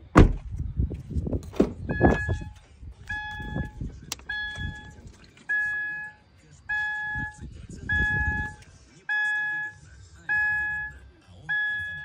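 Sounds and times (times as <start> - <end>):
rumbling handling noise: 0.0 - 5.4
car warning chime dings: 1.8 - 12.0.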